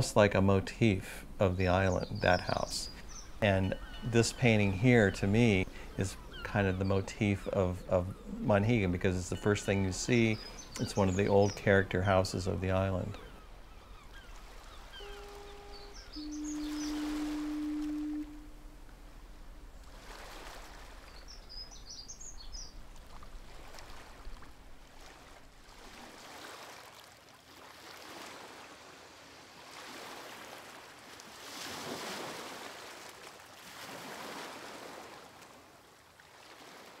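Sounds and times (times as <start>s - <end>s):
sea waves washing in: 14.2s - 21.5s
high chirps: 15.0s - 18.8s.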